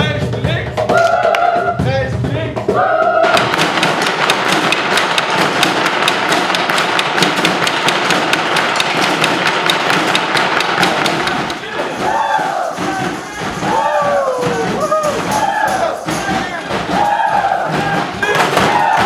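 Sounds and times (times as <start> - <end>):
low thumps: 3.2 - 19.0
drumsticks beating on buckets: 3.3 - 19.0
voices singing held notes: 8.4 - 19.0.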